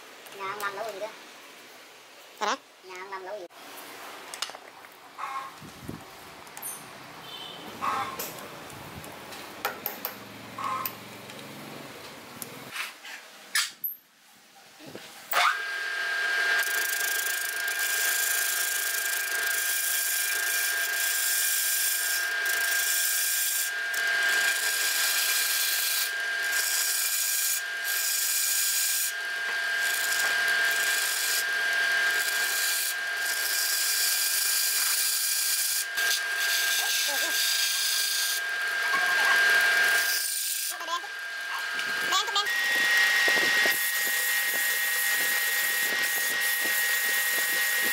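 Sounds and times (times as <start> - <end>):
turning tool cutting wood: 15.4 - 47.9
wood lathe motor whine: 15.4 - 47.9.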